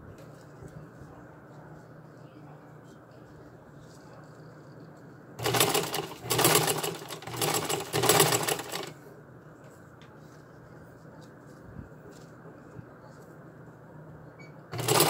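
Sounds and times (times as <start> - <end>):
sewing machine needle clatter: 5.4 - 8.9, 14.7 - 15.0.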